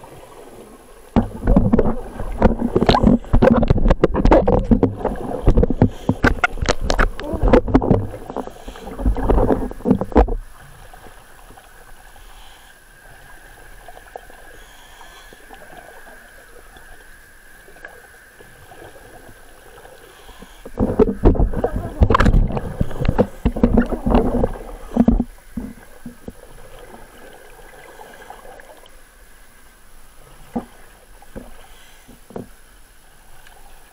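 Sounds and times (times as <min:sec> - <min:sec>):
underwater regulator bubbles: 0:01.1 - 0:10.5, 0:20.7 - 0:26.4
steady hiss: 0:05.1 - 0:33.9.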